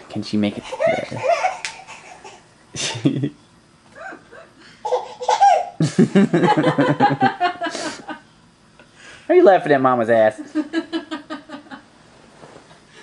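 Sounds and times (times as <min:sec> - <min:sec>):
baby laughing: 0:00.6 - 0:02.4, 0:04.2 - 0:05.8.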